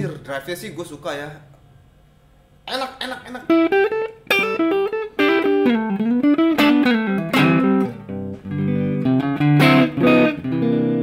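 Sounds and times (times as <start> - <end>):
overdriven electric guitar: 3.2 - 11.0.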